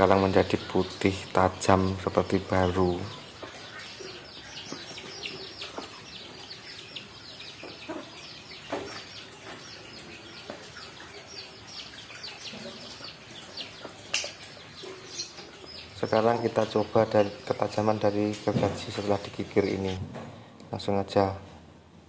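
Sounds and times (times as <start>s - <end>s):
small birds chirping: 0.0s - 21.4s.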